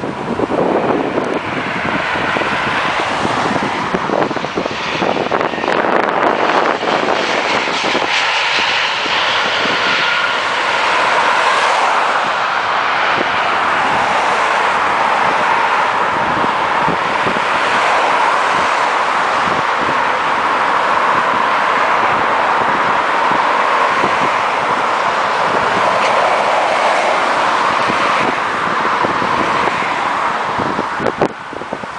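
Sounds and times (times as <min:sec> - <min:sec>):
jet engine roar: 0:00.0 - 0:31.9
road traffic: 0:00.0 - 0:31.9.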